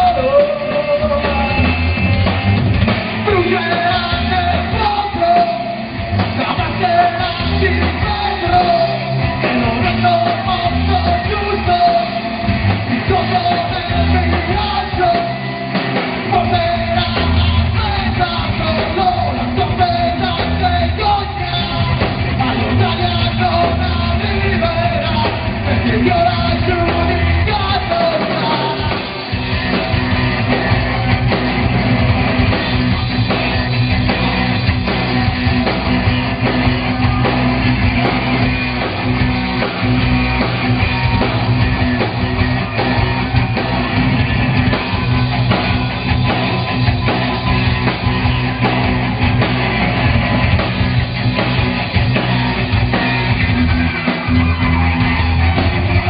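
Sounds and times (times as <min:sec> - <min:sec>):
person singing: 0:00.0 - 0:02.2, 0:12.9 - 0:15.5, 0:16.3 - 0:29.4
live rock band playing: 0:00.0 - 0:56.0.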